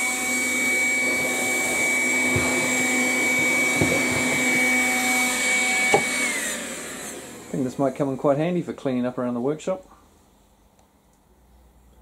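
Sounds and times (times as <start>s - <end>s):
vacuum motor whine: 0.0s - 8.6s.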